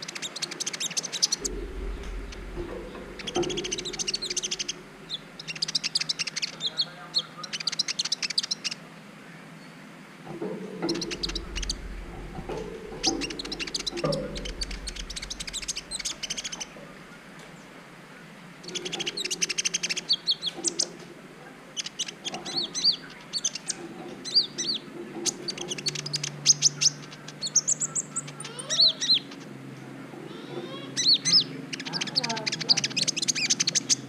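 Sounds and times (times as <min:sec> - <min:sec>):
sunbird chirps and trills: 0:00.0 - 0:08.8, 0:10.4 - 0:17.7, 0:18.6 - 0:21.1, 0:21.7 - 0:29.5.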